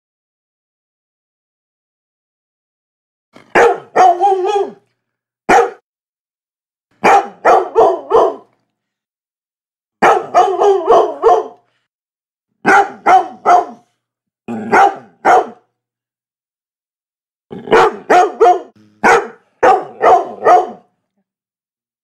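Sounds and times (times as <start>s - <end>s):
dog barking in bursts: 3.4s - 4.8s, 5.5s - 5.8s, 7.0s - 8.6s, 10.0s - 11.7s, 12.6s - 13.9s, 14.5s - 15.7s, 17.6s - 20.9s.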